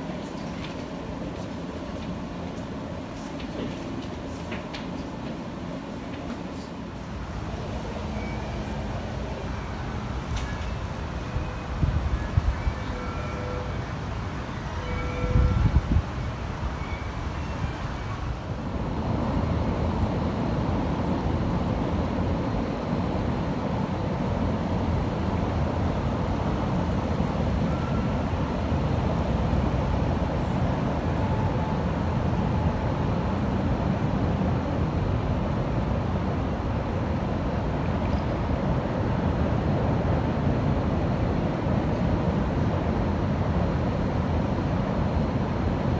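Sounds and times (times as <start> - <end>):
wind buffeting microphone: 10.0 - 13.0, 13.8 - 27.6.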